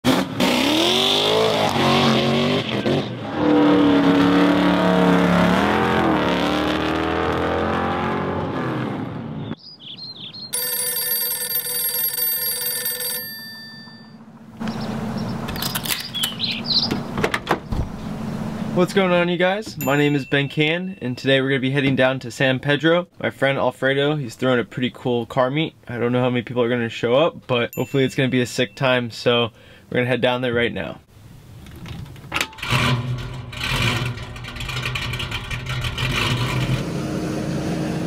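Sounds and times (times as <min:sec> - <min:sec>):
car engines revving: 0:00.0 - 0:09.5, 0:14.2 - 0:19.0, 0:32.6 - 0:38.0
road noise: 0:00.0 - 0:10.7, 0:13.2 - 0:20.3, 0:31.1 - 0:38.0.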